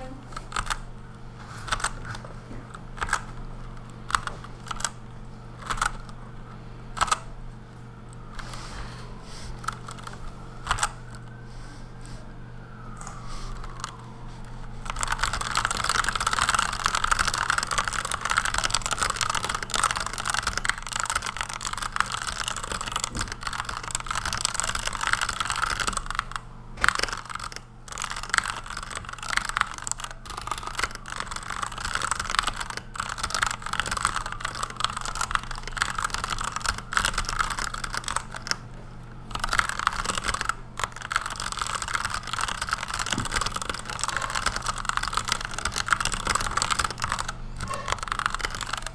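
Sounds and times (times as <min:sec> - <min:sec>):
mechanical keyboard typing: 0:00.4 - 0:00.8, 0:01.6 - 0:02.2, 0:03.0 - 0:05.0, 0:05.6 - 0:06.2, 0:07.0 - 0:07.3, 0:09.6 - 0:11.0, 0:14.8 - 0:38.6, 0:39.3 - 0:48.9.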